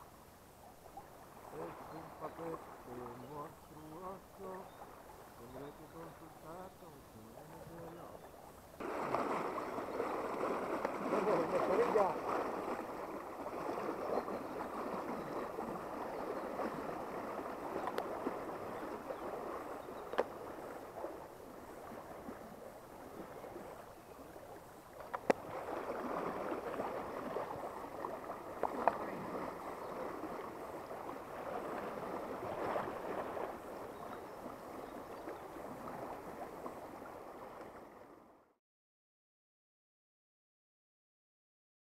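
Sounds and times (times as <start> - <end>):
river current rushing: 8.8 - 37.6.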